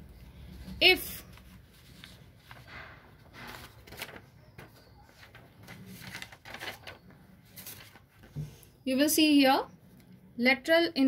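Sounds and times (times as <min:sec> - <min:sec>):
paper rustling: 0:00.5 - 0:08.7.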